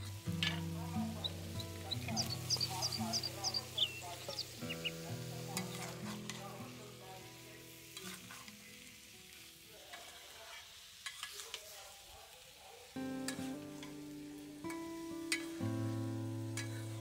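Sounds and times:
soft background music: 0.0 - 9.6, 13.0 - 17.0
vegetables sizzling in pan: 0.0 - 17.0
metal spatula scraping pan: 7.8 - 8.4, 11.0 - 11.6, 16.6 - 17.0.

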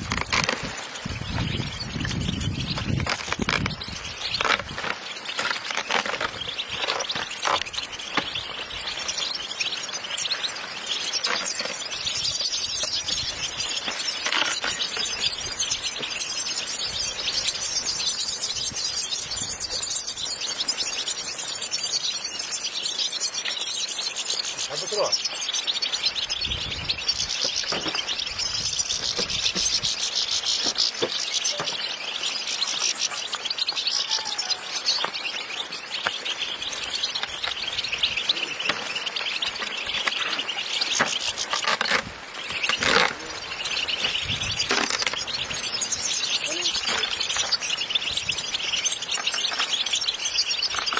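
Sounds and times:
flock of finches chirping: 0.0 - 50.9.

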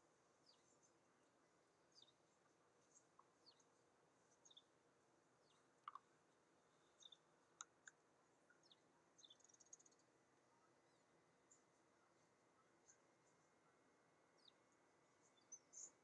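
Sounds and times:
faint songbirds chirping: 0.0 - 16.0
sharp clicks: 5.8 - 6.0.

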